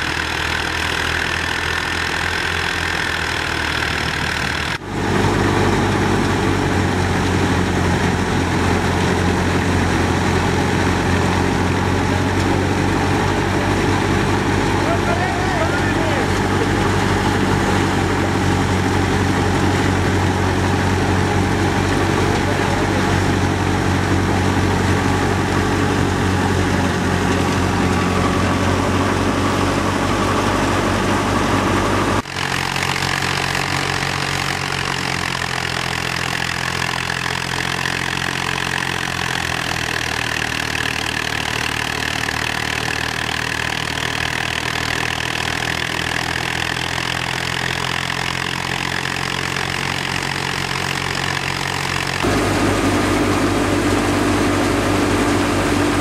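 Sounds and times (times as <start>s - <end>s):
thresher drum and fan whirring: 0.0s - 35.0s, 48.4s - 56.0s
tractor diesel engine running: 0.0s - 56.0s.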